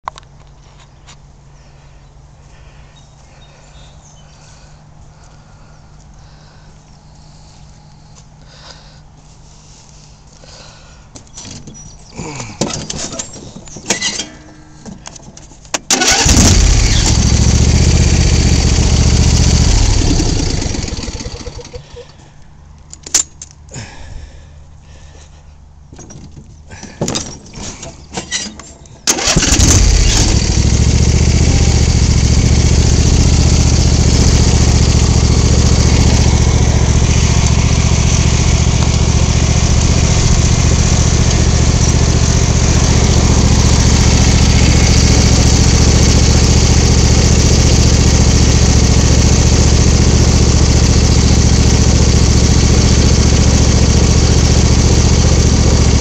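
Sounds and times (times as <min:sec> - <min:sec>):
tractor engine starting and running: 0:11.4 - 0:22.2, 0:27.2 - 0:56.0.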